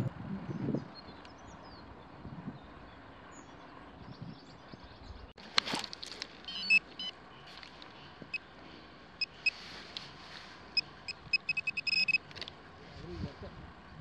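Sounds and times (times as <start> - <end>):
metal detector beeps: 6.4 - 7.2, 9.2 - 9.7, 10.7 - 12.4.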